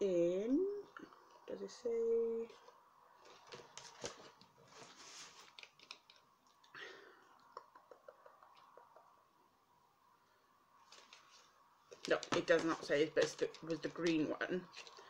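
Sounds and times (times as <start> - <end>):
packaging clicks and rustles: 5.3 - 6.2, 11.9 - 15.0.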